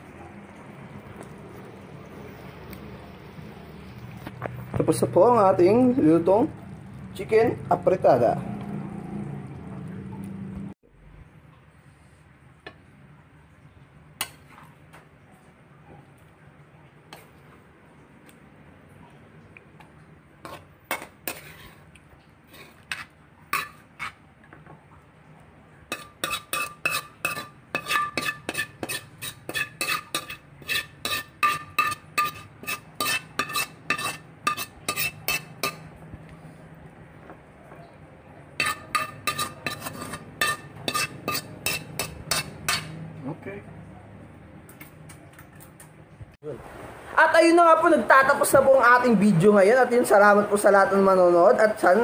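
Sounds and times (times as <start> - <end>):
ladle scraping a pan: 20.4 - 24.2, 25.9 - 36.0, 38.5 - 43.0
metal ladle clinking on dishes: 25.9 - 35.9, 38.6 - 43.0.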